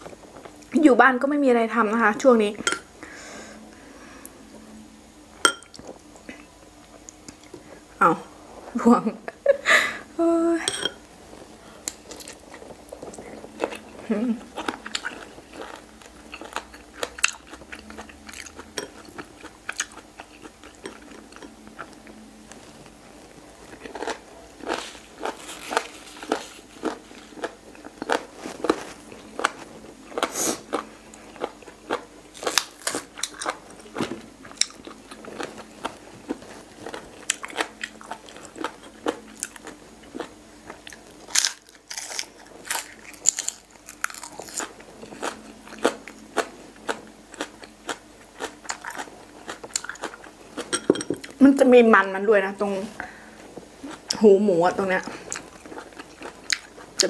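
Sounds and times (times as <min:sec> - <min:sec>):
crunchy chewing: 0:11.8 - 0:51.4, 0:55.1 - 0:57.0.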